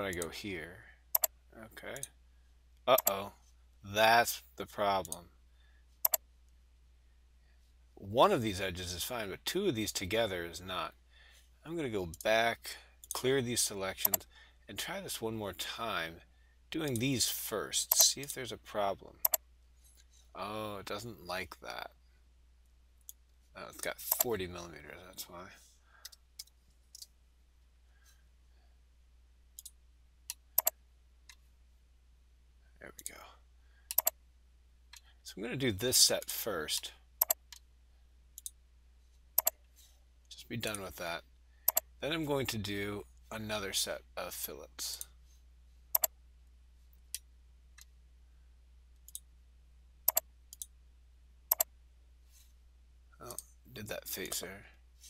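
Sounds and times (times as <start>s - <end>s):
faint low hum: 0.0s - 55.0s
computer mouse clicking: 1.1s - 1.3s, 3.0s - 3.2s, 6.0s - 6.2s, 24.1s - 24.3s, 29.6s - 30.8s, 33.9s - 34.2s, 37.2s - 37.6s, 39.4s - 39.6s, 41.6s - 41.9s, 45.9s - 46.1s, 50.1s - 50.7s.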